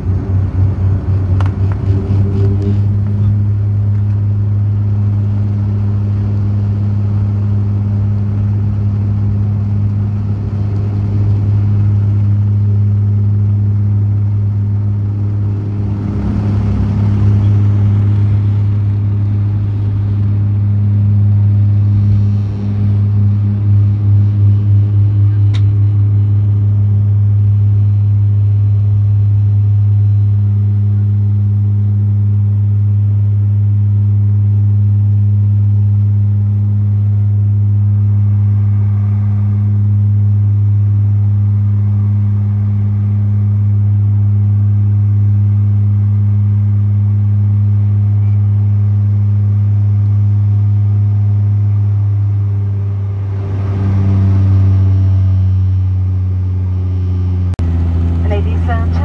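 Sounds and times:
turboprop propeller drone: 0.0 - 59.0.

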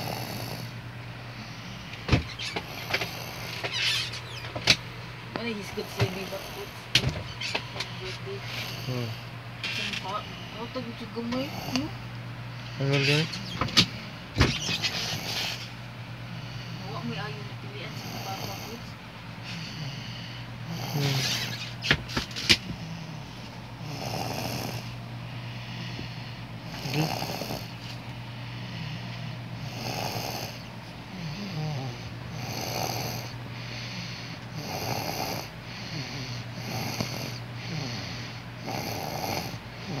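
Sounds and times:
child snoring: 0.0 - 0.8, 1.4 - 4.2, 5.7 - 6.9, 8.1 - 11.9, 14.6 - 15.7, 16.6 - 18.9, 19.5 - 25.0, 26.7 - 27.9, 29.6 - 40.0.

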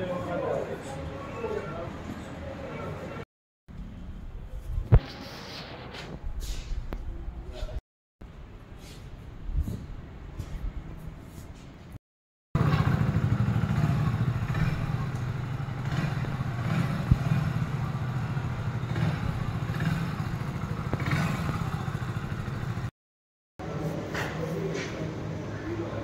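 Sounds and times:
motorcycle engine idling: 12.6 - 22.9.

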